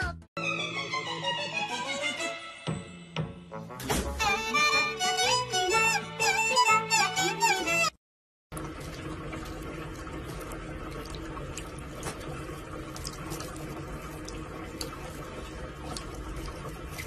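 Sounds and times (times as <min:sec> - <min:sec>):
water drips and splashes: 0:08.5 - 0:17.0
tap running into a sink: 0:08.6 - 0:17.0.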